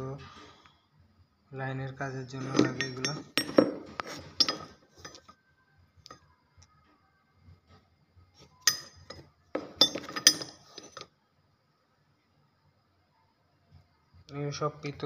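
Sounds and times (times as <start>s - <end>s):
metal cable lugs clinking: 2.4s - 5.3s, 8.7s - 11.0s.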